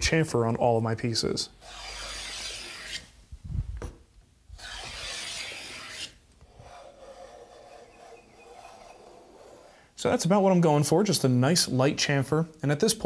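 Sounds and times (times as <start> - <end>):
block plane shaving wood: 1.6 - 3.0, 4.6 - 9.8.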